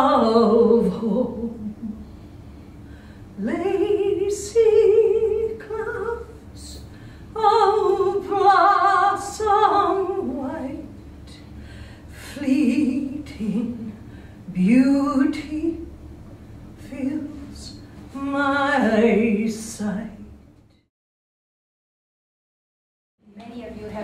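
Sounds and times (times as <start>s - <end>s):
woman singing unaccompanied: 0.0s - 1.9s, 3.4s - 6.8s, 7.4s - 10.9s, 12.3s - 15.9s, 16.8s - 20.2s
singer breathing: 2.0s - 3.4s, 6.8s - 7.4s, 11.4s - 12.2s, 14.0s - 14.5s.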